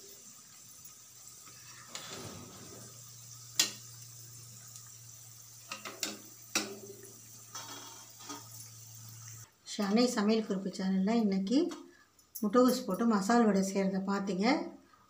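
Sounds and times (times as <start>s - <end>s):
food deep-frying in oil: 0.0s - 9.5s.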